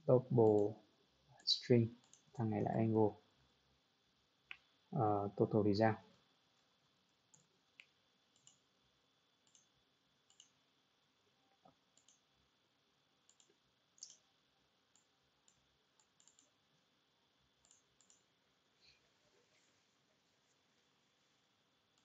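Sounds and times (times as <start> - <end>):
computer mouse and keyboard clicks: 0.4 - 0.7, 1.4 - 2.7, 7.3 - 8.6, 9.4 - 9.7, 10.3 - 10.6, 12.0 - 12.2, 13.3 - 14.2, 14.9 - 16.5, 17.6 - 18.3.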